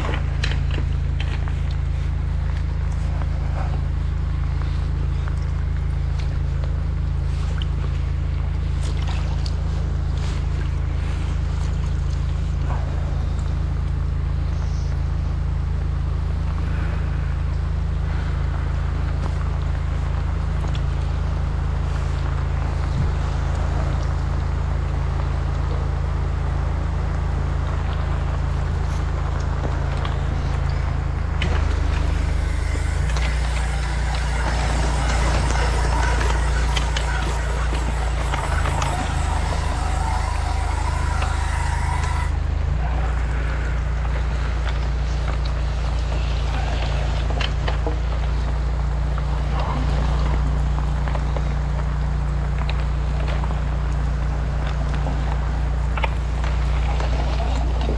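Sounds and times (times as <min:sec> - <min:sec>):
drain jetter engine running: 0:00.0 - 0:57.9
loud hiss: 0:30.2 - 0:42.5.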